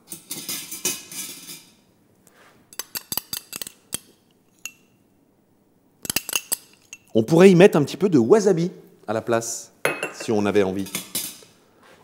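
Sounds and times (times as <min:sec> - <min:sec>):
spoon scraping glass: 0:02.7 - 0:04.9
metal spoon clinking on glass: 0:02.8 - 0:05.0, 0:06.0 - 0:07.1.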